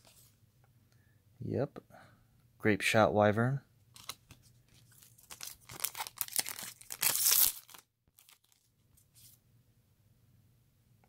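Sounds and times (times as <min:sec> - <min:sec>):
foil wrapper and cards crinkling: 0:04.0 - 0:09.3.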